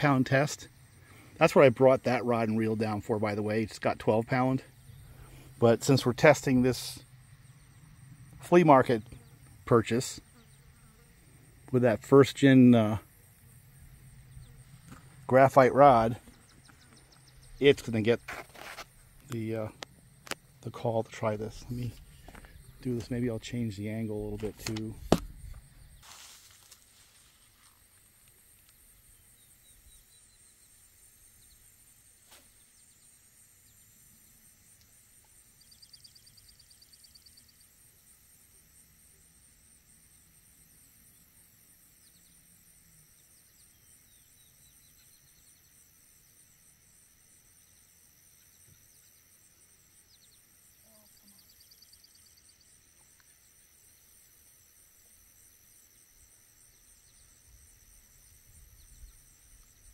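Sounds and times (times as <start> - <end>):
bird calls: 13.8 - 26.2
high-pitched insect trill: 25.1 - 59.9.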